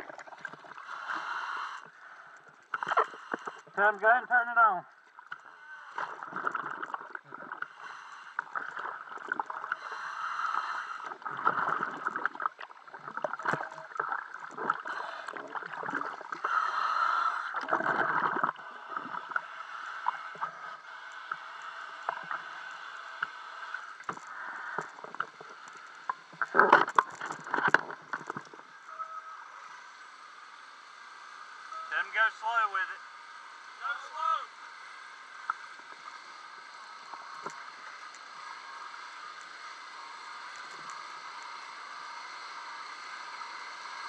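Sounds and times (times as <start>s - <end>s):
water sloshing and splashing: 0.0s - 1.0s, 5.0s - 10.0s, 11.0s - 16.6s, 17.4s - 21.4s, 23.2s - 28.7s.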